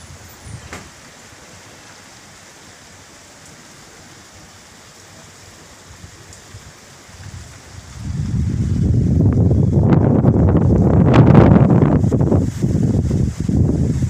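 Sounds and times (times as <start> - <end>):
steady rain falling: 0.0 - 14.0
wind gusts buffeting microphone: 5.8 - 14.0.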